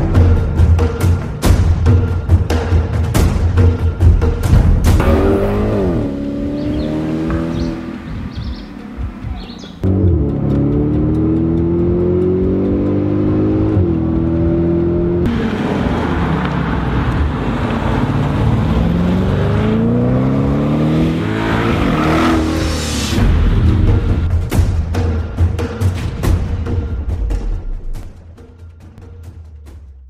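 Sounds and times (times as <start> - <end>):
car engine accelerating hard: 4.9 - 23.3.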